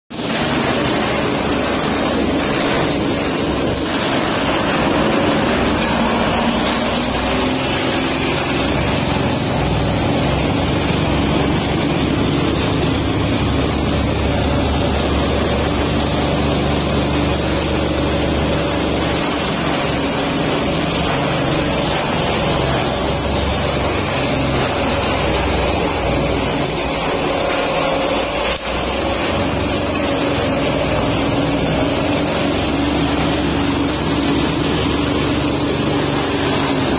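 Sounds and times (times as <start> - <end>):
stalk chopper machine running: 0.1 - 36.9.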